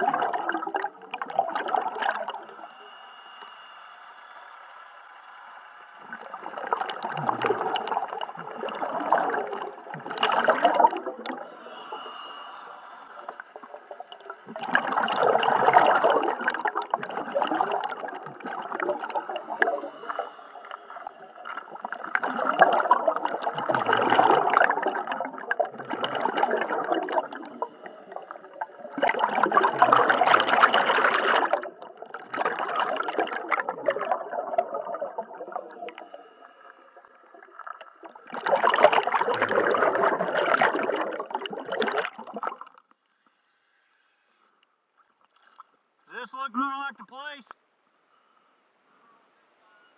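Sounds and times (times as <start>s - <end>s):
underwater exhalation bubbles: 0.0s - 2.6s, 6.0s - 12.4s, 13.2s - 42.8s.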